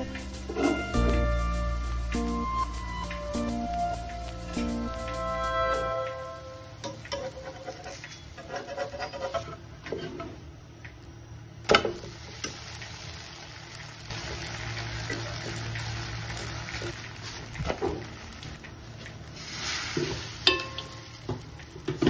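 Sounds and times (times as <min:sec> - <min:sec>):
low steady hum: 0:00.0 - 0:08.2.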